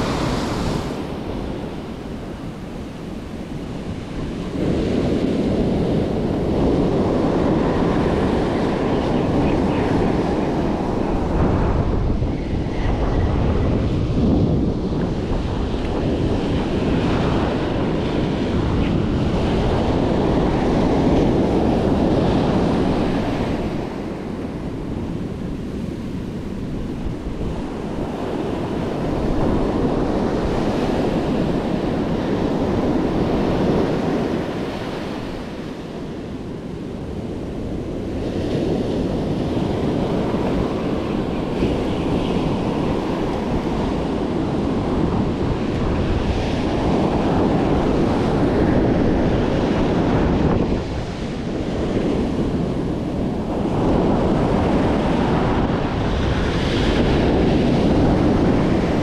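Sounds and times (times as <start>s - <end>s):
surf breaking on beach: 0.0s - 2.8s, 37.3s - 59.0s
wind buffeting microphone: 0.0s - 59.0s.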